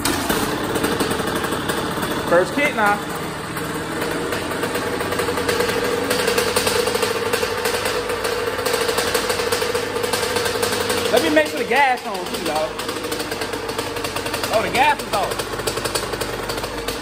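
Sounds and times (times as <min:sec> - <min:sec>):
two-stroke motorcycle engine running: 0:00.0 - 0:17.0.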